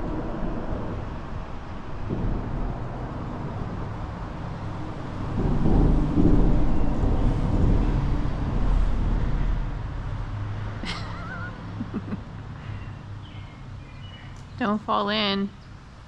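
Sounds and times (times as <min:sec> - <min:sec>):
vehicle rumbling over bridge: 0:00.0 - 0:14.8.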